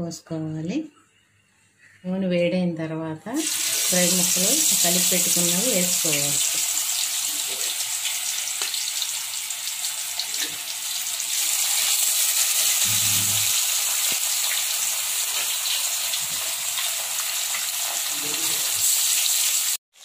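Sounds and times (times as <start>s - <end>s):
fish sizzling in hot oil: 3.4s - 20.0s.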